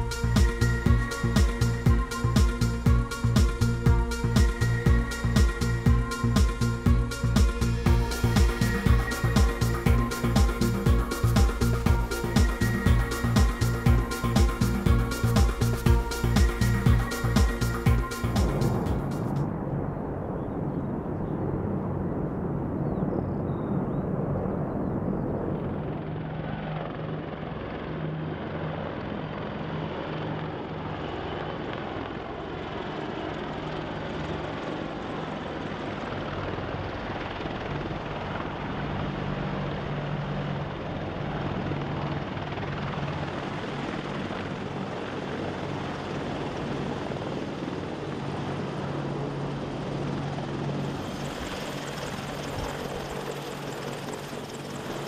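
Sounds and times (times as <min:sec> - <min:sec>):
helicopters flying: 0:00.0 - 0:55.0.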